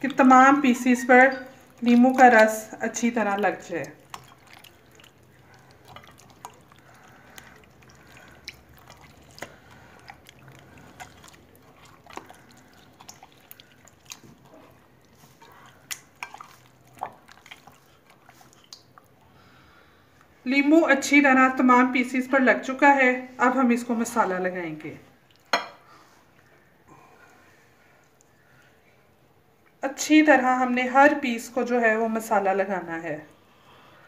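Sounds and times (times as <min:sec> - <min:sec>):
wet squishes and drips: 0:00.0 - 0:19.4, 0:25.2 - 0:25.6.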